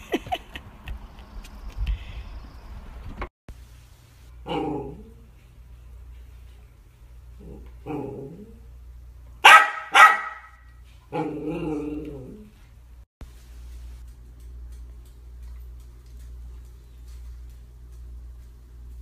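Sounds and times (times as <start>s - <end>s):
dog barking: 9.4s - 11.3s.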